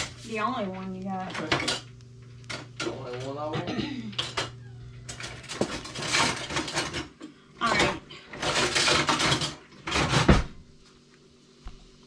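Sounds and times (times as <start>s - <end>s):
cookware being handled: 2.5s - 10.2s.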